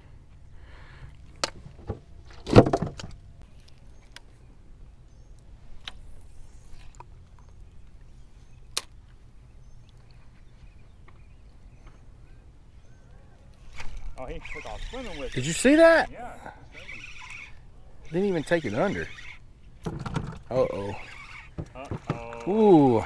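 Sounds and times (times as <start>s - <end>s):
clicks and knocks of fishing tackle: 13.6s - 14.1s.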